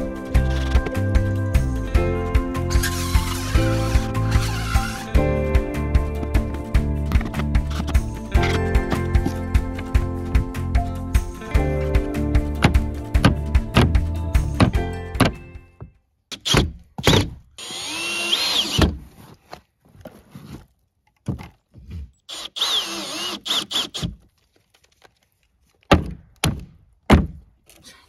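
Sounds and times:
cordless drill driving screws: 0:02.7 - 0:05.2, 0:16.3 - 0:18.9, 0:22.3 - 0:24.2.

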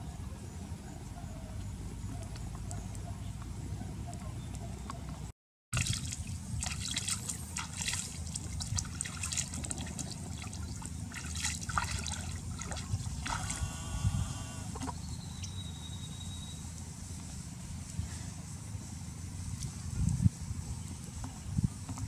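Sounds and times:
water splashing and trickling: 0:05.7 - 0:13.7.

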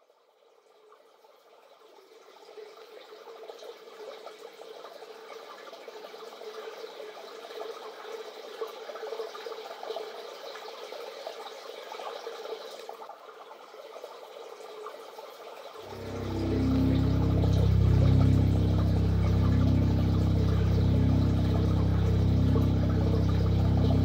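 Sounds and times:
crackling water-like noise: 0:00.0 - 0:24.0
steady hum: 0:15.9 - 0:24.0.

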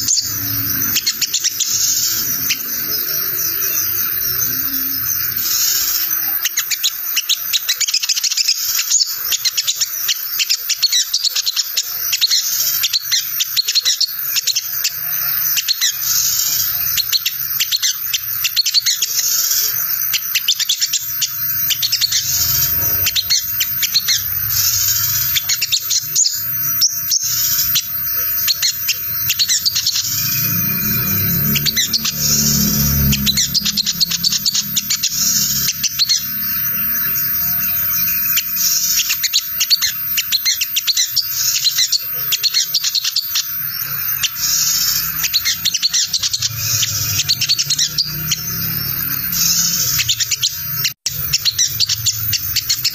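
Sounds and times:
sunbird twittering chatter: 0:00.0 - 0:52.9
low hum: 0:28.9 - 0:38.2.

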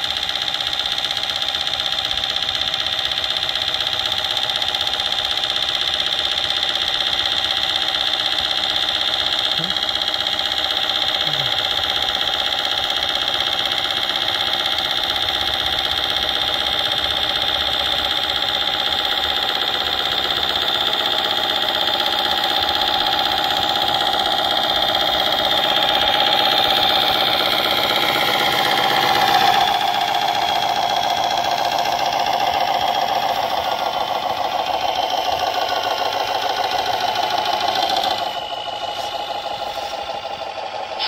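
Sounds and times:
simulated diesel truck engine: 0:00.0 - 0:41.0.

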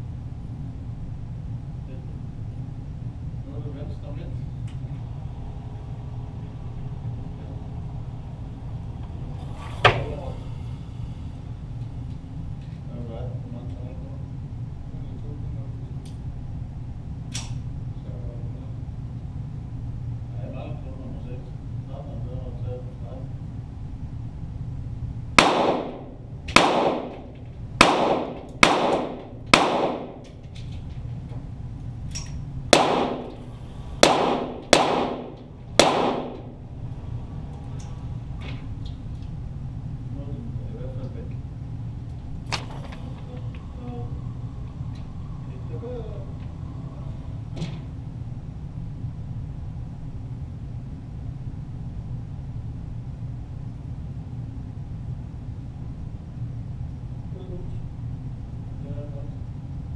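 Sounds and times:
steady low rumble: 0:00.0 - 0:59.9
pistol shots echoing indoors: 0:25.4 - 0:30.6, 0:32.1 - 0:36.6.

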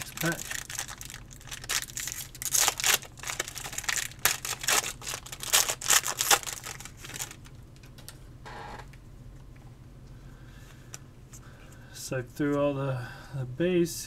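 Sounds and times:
foil wrapper tearing and crinkling: 0:00.0 - 0:07.6.

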